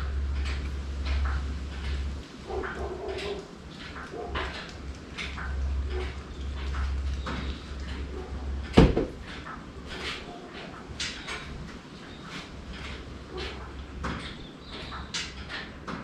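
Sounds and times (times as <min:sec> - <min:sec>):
loud thump: 0:08.8 - 0:09.2.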